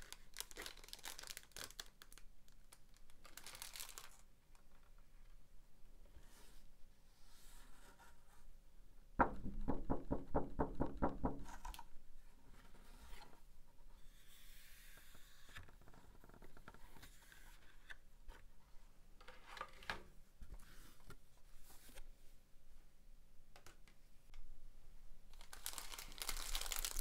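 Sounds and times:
plastic packaging crackling: 0:00.0 - 0:04.3, 0:25.3 - 0:27.0.

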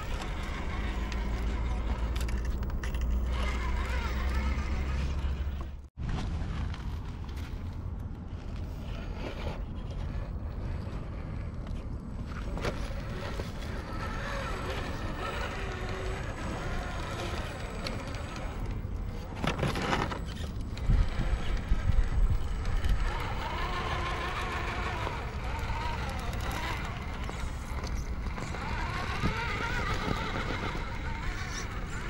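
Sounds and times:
rc truck motors whining: 0:00.0 - 0:05.9, 0:08.4 - 0:32.0
wind rumble on microphone: 0:06.0 - 0:32.0.

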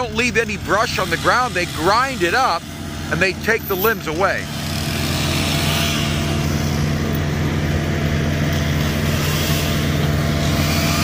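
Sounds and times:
heavy machinery engine droning: 0:00.0 - 0:11.0.

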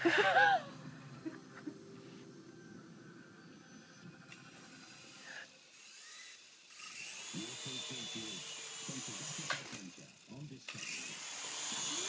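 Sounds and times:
small electric motor whirring: 0:03.7 - 0:12.0.

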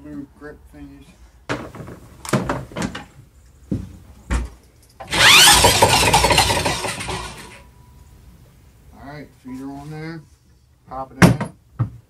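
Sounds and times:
electric drill whirring: 0:05.0 - 0:07.6.

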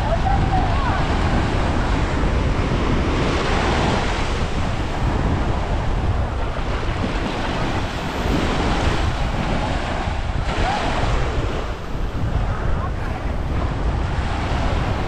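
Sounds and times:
sea surf breaking on beach: 0:00.0 - 0:15.0
wind buffeting microphone: 0:00.0 - 0:15.0.

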